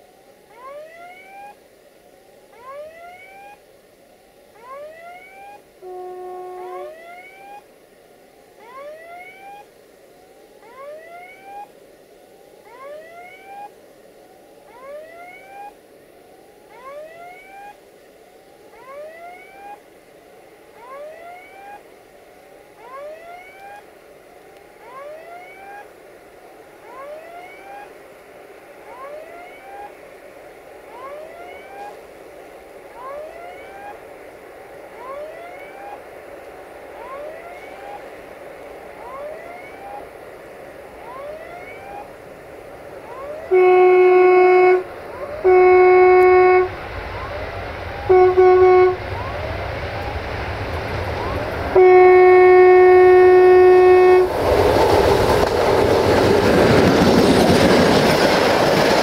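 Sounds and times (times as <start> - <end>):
level crossing warning tone: 0.3 - 7.7, 8.6 - 9.8, 10.4 - 11.8, 12.5 - 13.8, 14.4 - 15.9, 16.5 - 54.4
diesel locomotive rumble: 36.0 - 59.0.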